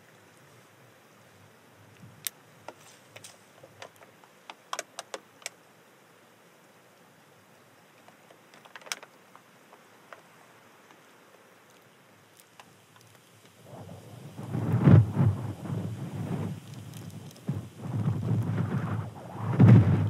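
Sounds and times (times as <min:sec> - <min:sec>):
small things being handled: 0:02.2 - 0:05.6, 0:07.9 - 0:13.6.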